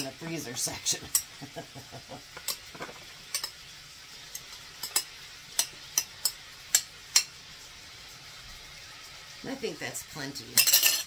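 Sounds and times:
meat sizzling in a skillet: 0.0 - 11.0.

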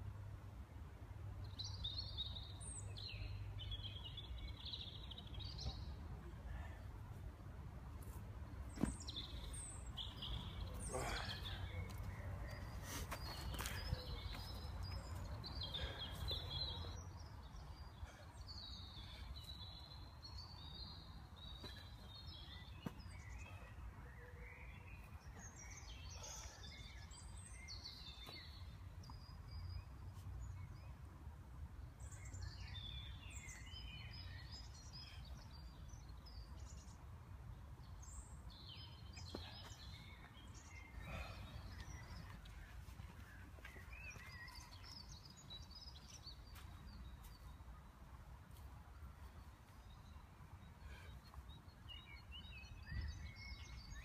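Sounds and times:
small birds chirping: 8.6 - 31.1, 31.8 - 54.0.

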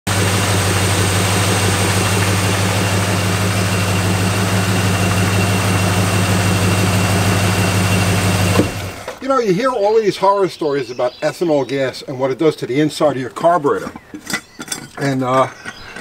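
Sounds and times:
car engine idling: 0.0 - 9.2.

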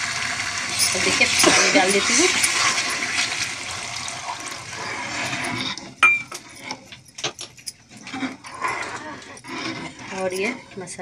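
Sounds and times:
water pouring into pan: 0.0 - 5.5
steel ladle clinking and scraping: 0.6 - 3.5, 4.6 - 11.0
metal clink with ring: 5.2 - 8.7.

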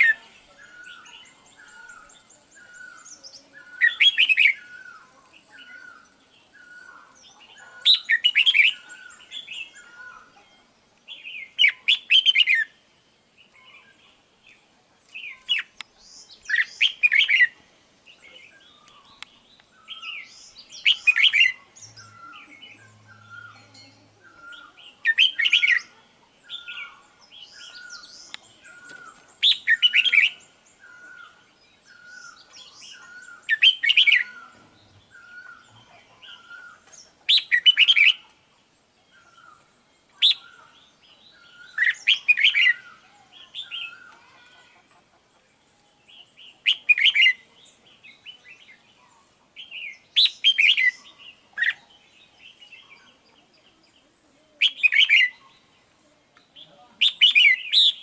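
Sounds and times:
short evenly spaced bird notes: 0.0 - 58.0.

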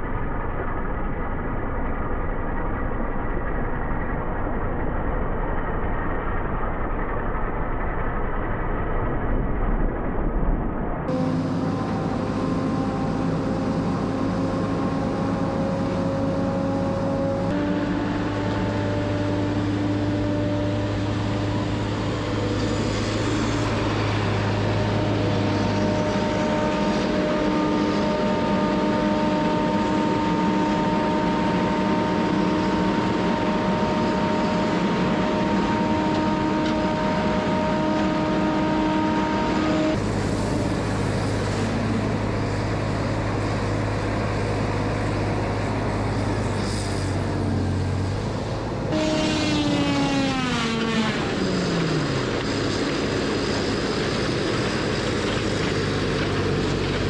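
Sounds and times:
hydraulic whine dropping in pitch: 0.0 - 55.0
diesel engine and hydraulics drone: 0.0 - 57.0.

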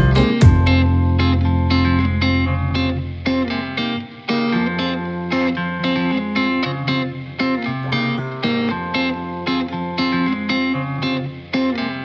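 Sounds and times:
low bass: 0.0 - 3.6
plucked guitar notes: 0.0 - 12.0.

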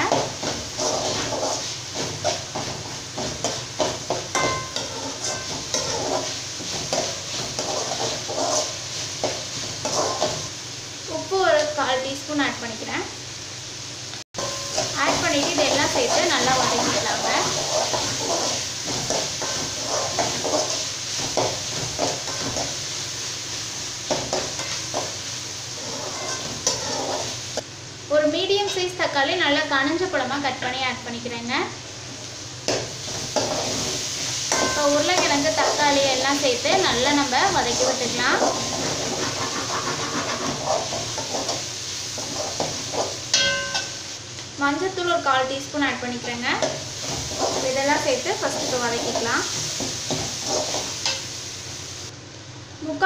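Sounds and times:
metal spoon scraping a pan: 0.0 - 10.5, 14.4 - 23.0, 24.1 - 27.4, 32.7 - 44.0, 46.3 - 51.3
food sizzling in oil: 0.0 - 53.0.

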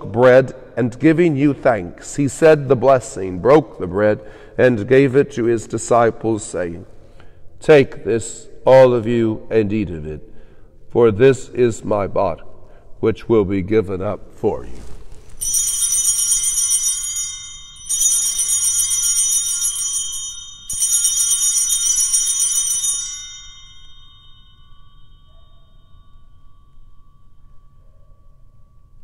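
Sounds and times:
altar bells jingling: 15.4 - 29.0.

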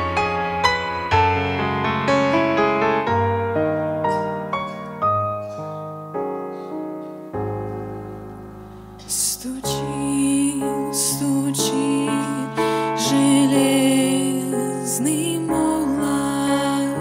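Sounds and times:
slow piano notes and chords: 0.0 - 17.0
woman singing into a microphone: 9.0 - 17.0.

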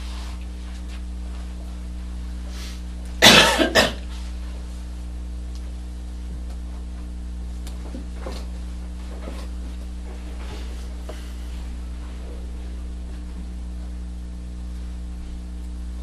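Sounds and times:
low electrical hum: 0.0 - 16.0
person coughing: 3.2 - 4.1.

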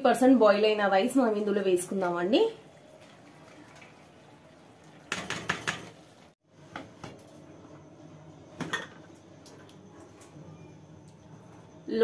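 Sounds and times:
knocks and clinks of cookware: 5.1 - 6.0.

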